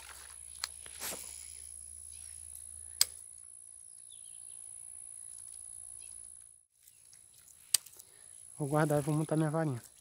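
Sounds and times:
faint bird chirps: 3.7s - 4.8s.

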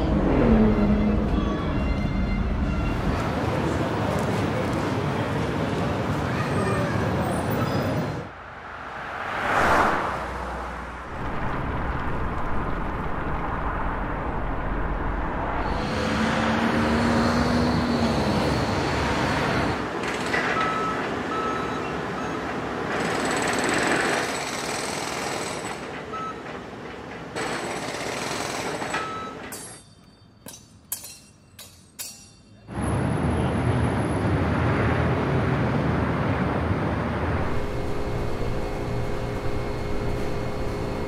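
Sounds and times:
heavy vehicles passing: 0.0s - 24.3s, 32.7s - 41.0s
city street traffic: 0.0s - 41.0s.

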